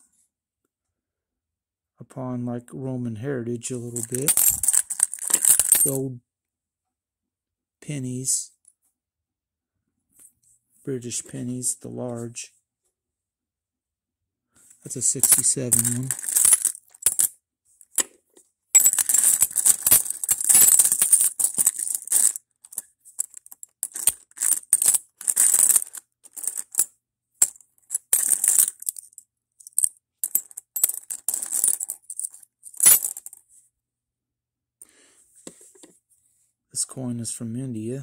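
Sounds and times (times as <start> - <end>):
metal coins clinking and jingling: 4.0 - 6.0, 15.0 - 17.3, 18.8 - 33.4.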